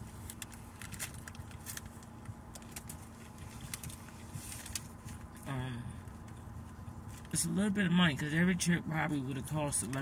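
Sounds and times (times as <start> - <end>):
paper food wrapper crinkling: 0.0 - 5.4
car cabin hum: 0.0 - 10.0.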